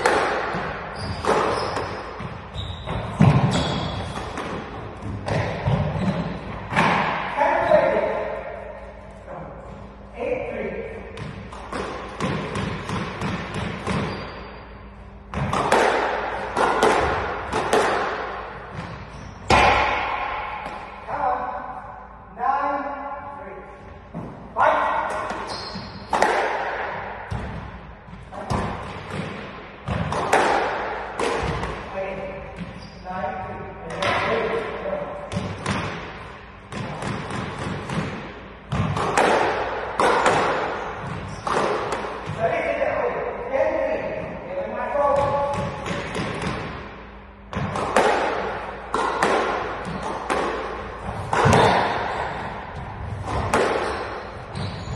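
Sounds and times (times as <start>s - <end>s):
squash ball smacks echoing: 0.0s - 7.6s, 11.1s - 14.4s, 15.3s - 21.1s, 24.2s - 32.8s, 35.2s - 42.5s, 45.0s - 54.6s
squash ball knocks: 15.3s - 18.9s, 19.5s - 20.9s, 28.4s - 31.8s, 36.7s - 42.4s, 47.5s - 54.1s.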